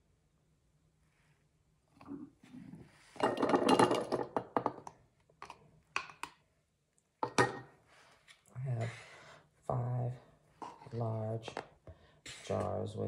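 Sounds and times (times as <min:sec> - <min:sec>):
plastic cup knocking: 0:03.2 - 0:06.3.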